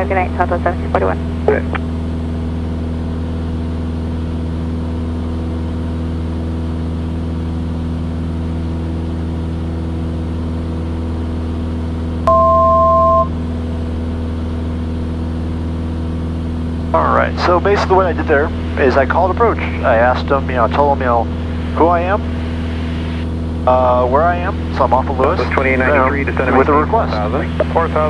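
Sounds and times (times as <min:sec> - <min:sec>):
aircraft engine and propeller drone: 0:00.0 - 0:28.0
two-tone electronic beep: 0:12.3 - 0:13.4.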